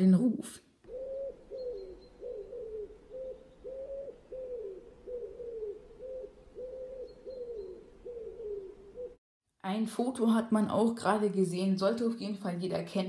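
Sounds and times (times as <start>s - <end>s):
pigeon cooing: 0.8s - 9.2s.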